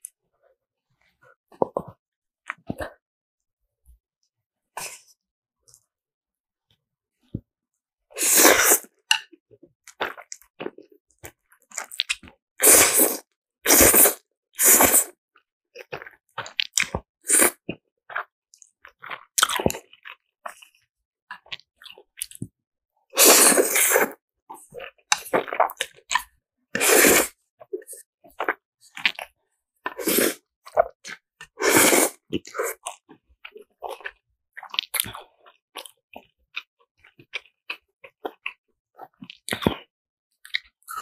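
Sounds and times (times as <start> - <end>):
slurping noodles: 8.1 - 9.3, 11.7 - 15.2, 15.8 - 18.3, 23.1 - 36.3
wet chewing: 18.9 - 20.7.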